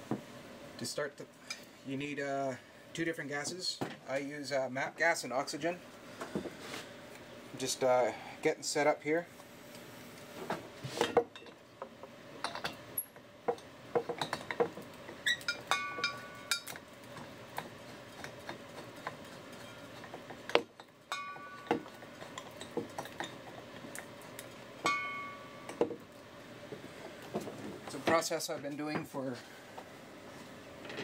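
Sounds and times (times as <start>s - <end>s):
metal tools clinking on workbench: 15.3s - 16.8s, 21.1s - 23.5s
ringing metallic clanks: 15.4s - 16.7s, 21.1s - 22.0s, 24.8s - 25.8s.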